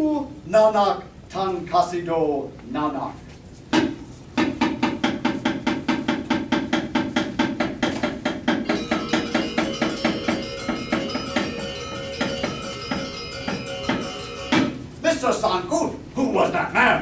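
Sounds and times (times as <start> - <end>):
rapid wooden knocking on a box: 3.8 - 14.8
ringing metallophone tones: 8.6 - 15.0.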